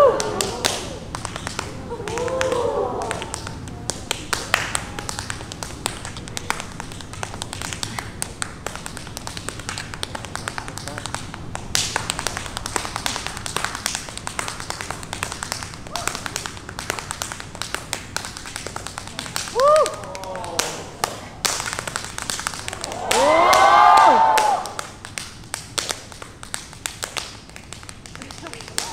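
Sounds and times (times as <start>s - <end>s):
crowd noise: 0.0s - 8.7s, 19.0s - 24.8s.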